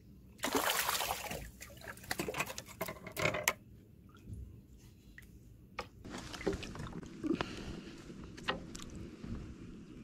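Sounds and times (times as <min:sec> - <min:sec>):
fish splashing in water: 0:00.4 - 0:02.4.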